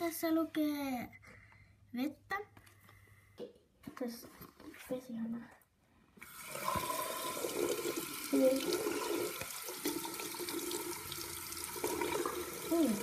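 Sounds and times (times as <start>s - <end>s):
tap water running into sink: 6.2s - 13.0s.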